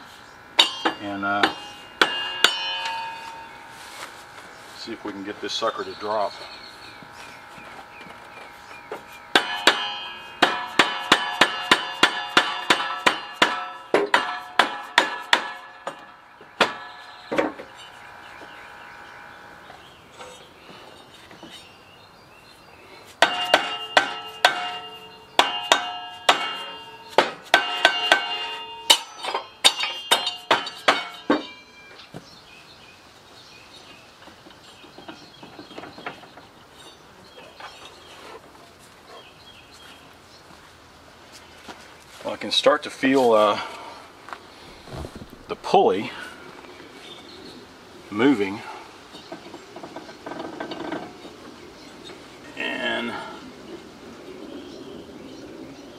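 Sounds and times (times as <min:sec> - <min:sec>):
hammer striking metal pulley: 0:00.6 - 0:03.5, 0:09.3 - 0:17.8, 0:23.2 - 0:31.6.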